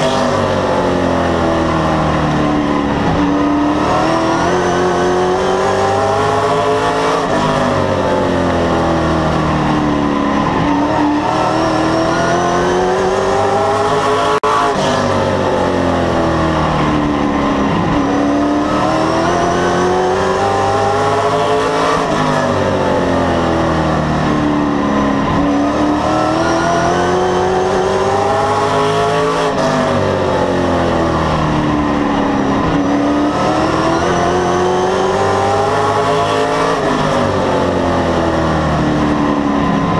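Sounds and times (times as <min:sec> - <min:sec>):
race car engine: 0:00.0 - 0:39.9.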